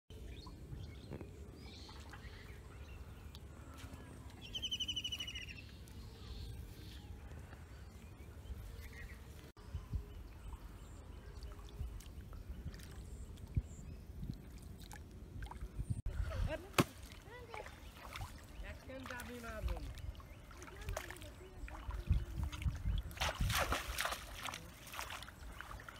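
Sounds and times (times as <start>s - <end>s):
faint bird chirps: 0.2s - 14.2s.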